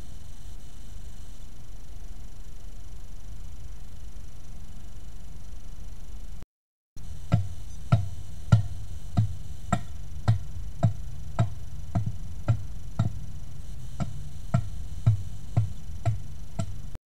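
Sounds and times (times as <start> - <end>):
hand tool striking wood: 7.3 - 13.2, 14.0 - 16.9.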